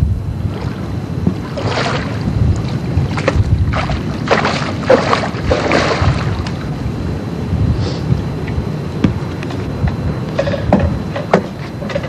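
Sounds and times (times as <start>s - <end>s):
wind rumbling on microphone: 0.0s - 12.0s
fish splashing in water: 1.4s - 6.8s.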